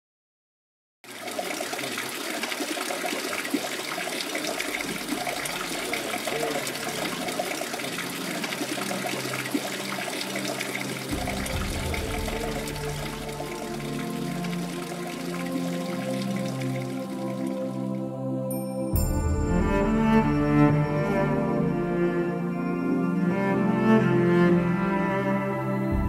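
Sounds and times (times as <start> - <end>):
fountain water splashing: 1.1 - 17.9
soft music: 4.6 - 26.0.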